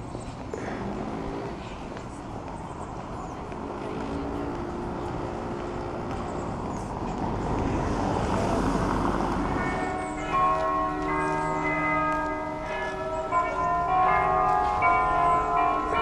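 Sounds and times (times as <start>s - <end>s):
street noise: 0.0s - 16.0s
church bells ringing: 7.6s - 16.0s.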